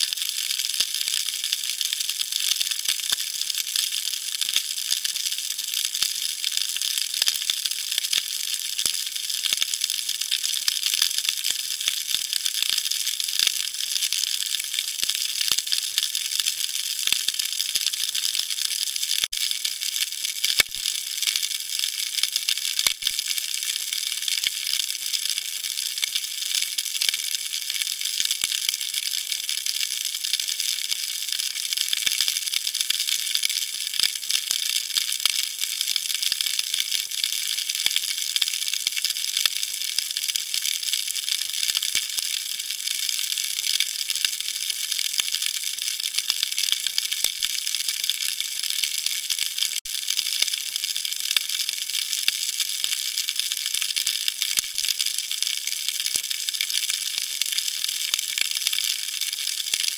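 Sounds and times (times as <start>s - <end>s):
snapping shrimp crackle underwater: 0.0s - 59.9s.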